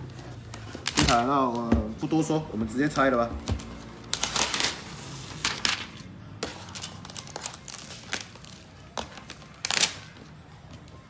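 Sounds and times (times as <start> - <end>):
plastic wrapping crinkling: 3.6 - 10.2.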